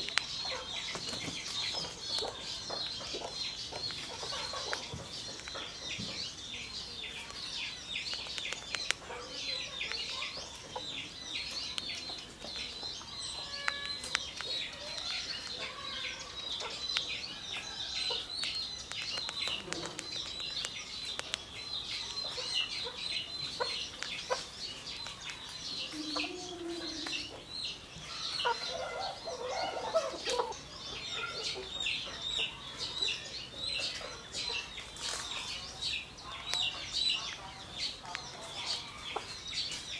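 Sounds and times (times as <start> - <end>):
high-pitched bird chirping: 0.0 - 39.9
hen clucking: 25.8 - 27.5.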